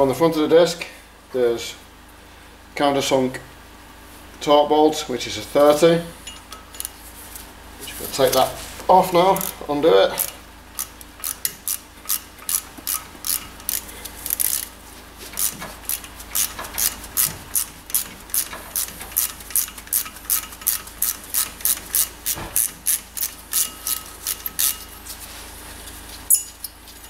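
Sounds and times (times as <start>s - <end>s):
ratchet clicking: 10.2s - 14.7s, 15.4s - 24.8s.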